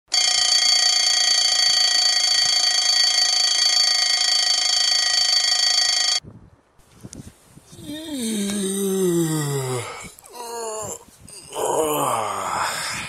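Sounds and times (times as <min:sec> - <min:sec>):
alarm clock ringing: 0:00.1 - 0:06.2.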